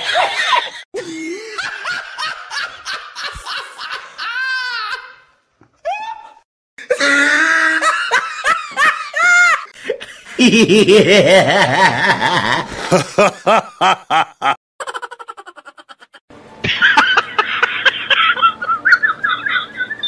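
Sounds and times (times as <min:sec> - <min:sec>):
higher-pitched laugh: 0:06.2 - 0:20.0.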